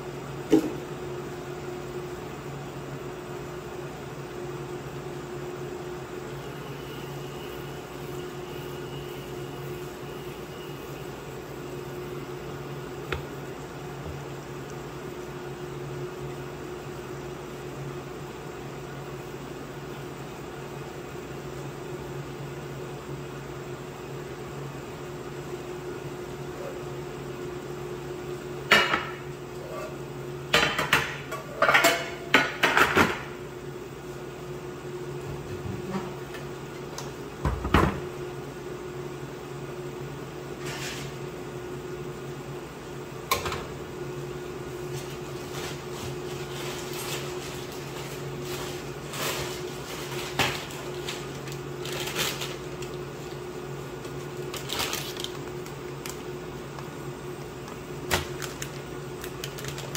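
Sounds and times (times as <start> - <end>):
pans clattering on a counter: 30.5 - 33.3.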